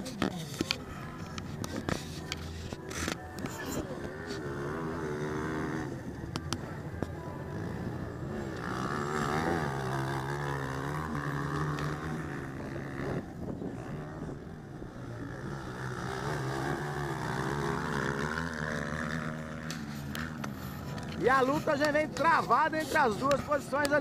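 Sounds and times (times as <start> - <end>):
motocross engines revving: 0.0 - 24.0.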